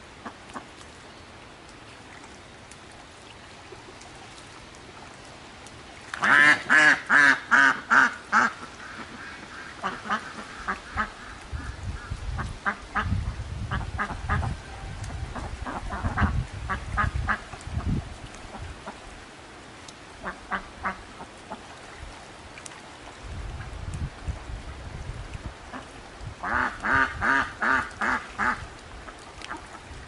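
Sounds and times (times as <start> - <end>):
ducks quacking: 6.2 - 17.5, 20.2 - 21.6, 25.7 - 29.7
wind rumble on microphone: 10.6 - 19.2, 23.1 - 30.0.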